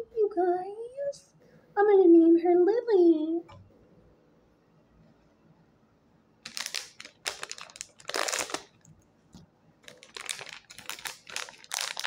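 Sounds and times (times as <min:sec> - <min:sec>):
plastic packaging crinkling: 0:06.4 - 0:08.9, 0:09.8 - 0:12.0.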